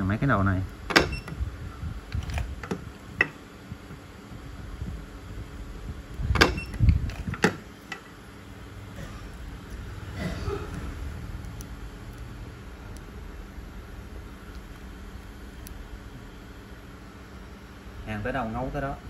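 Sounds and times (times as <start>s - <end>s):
sharp welding snaps: 11.1s - 13.3s, 14.1s - 16.2s.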